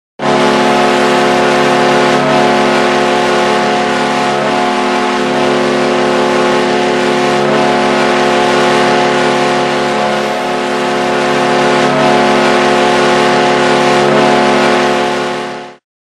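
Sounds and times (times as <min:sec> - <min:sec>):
constant wash of noise: 0:08.5 - 0:14.2
goal horn blaring: 0:09.8 - 0:13.1.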